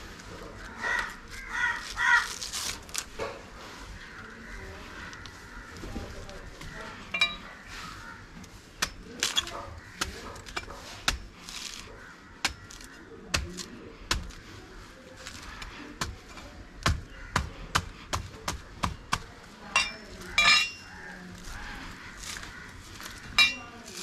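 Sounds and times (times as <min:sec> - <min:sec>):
blade chopping coconut: 0:15.9 - 0:19.3.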